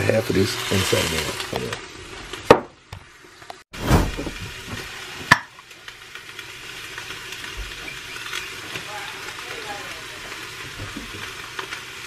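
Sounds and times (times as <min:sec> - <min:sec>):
food sizzling in a pot: 0:00.0 - 0:12.0
short rush: 0:03.8 - 0:04.4.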